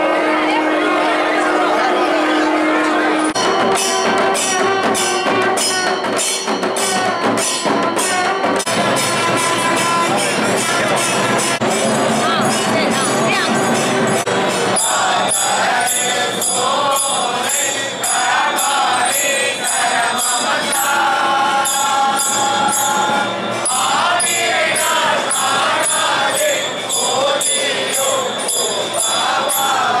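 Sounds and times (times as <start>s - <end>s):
group singing a hymn: 0.0s - 3.4s, 14.2s - 30.0s
metallic jingle beat: 1.6s - 30.0s.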